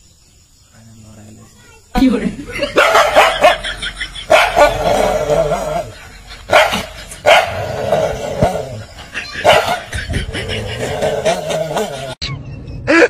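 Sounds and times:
dog barking aggressively: 2.6 - 5.8, 6.5 - 8.8, 9.4 - 10.0.

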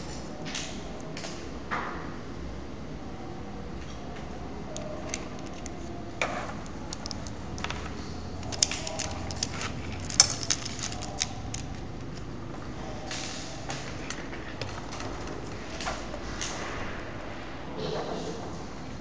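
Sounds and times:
handling rustles: 4.8 - 12.3
small kit parts clicking: 6.6 - 12.3.

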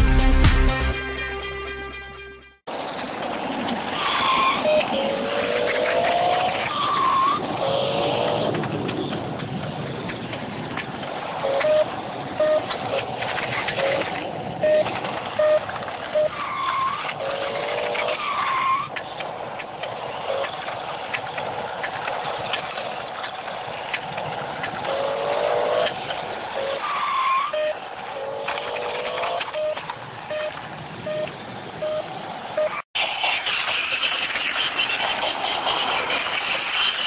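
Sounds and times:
toy car electric motor whirring: 2.9 - 37.0
swooping electronic tones: 4.0 - 9.2, 11.4 - 18.9, 26.6 - 32.8
short beeps: 29.0 - 32.8.

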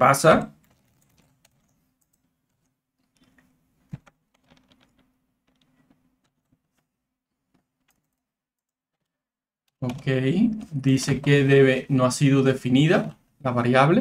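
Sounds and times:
computer keys clicking: 0.6 - 6.9.

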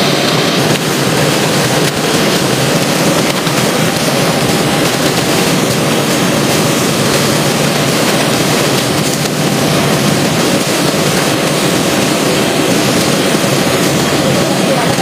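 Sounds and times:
rushing running water: 0.0 - 15.0.

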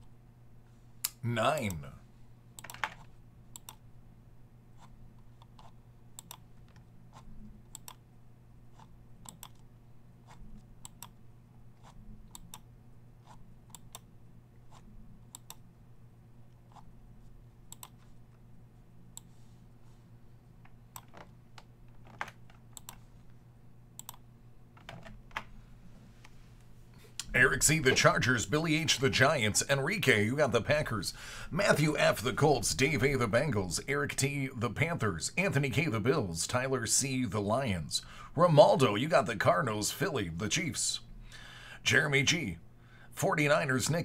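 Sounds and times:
steady low hum: 0.0 - 44.0
mouse clicks: 3.5 - 3.8, 8.8 - 9.6, 14.7 - 15.6, 17.7 - 18.0, 22.8 - 23.0, 24.0 - 24.2.

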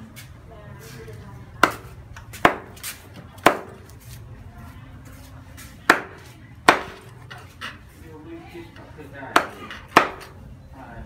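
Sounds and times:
knife chopping on wooden board: 1.6 - 3.8.

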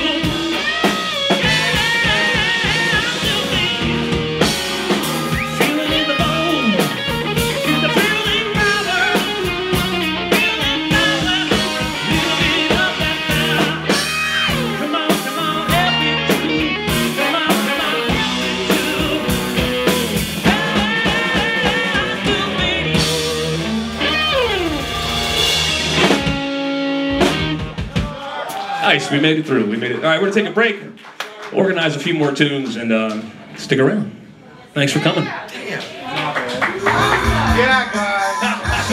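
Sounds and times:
live rock band playing: 0.0 - 28.9, 36.7 - 38.9.

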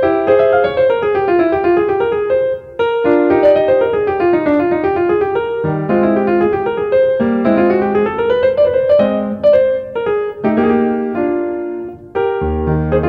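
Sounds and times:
fast piano piece: 0.0 - 13.0.

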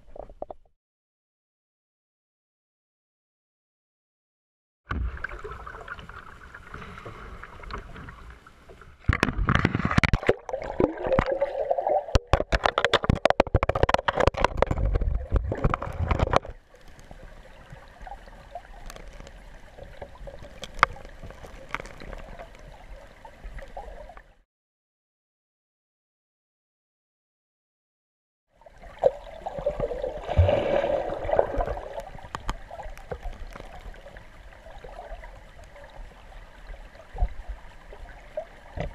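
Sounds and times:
kayak paddle strokes splashing: 28.7 - 34.7.

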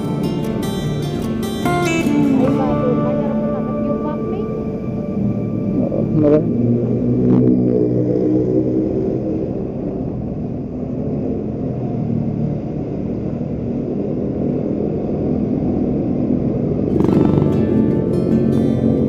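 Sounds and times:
music: 0.0 - 7.4, 16.9 - 19.0
motorcycle engine running: 0.0 - 19.0
wind and road noise: 0.0 - 19.0.

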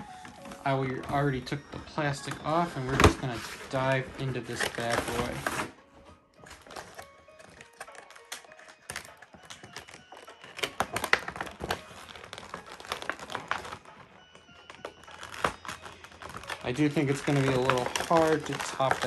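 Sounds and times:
cardboard box packaging clicks and crinkles: 2.3 - 5.7, 6.4 - 13.9, 14.6 - 19.0.

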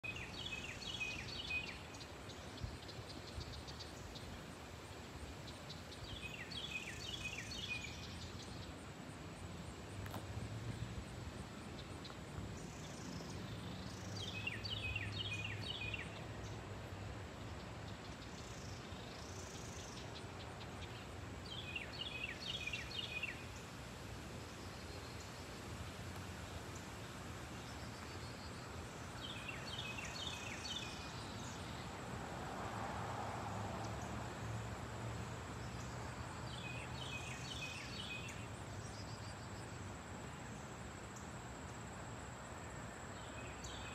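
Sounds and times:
bird chirping: 0.0 - 4.4, 5.4 - 8.8, 11.8 - 16.6, 17.4 - 23.5, 27.5 - 31.9, 35.6 - 41.3.

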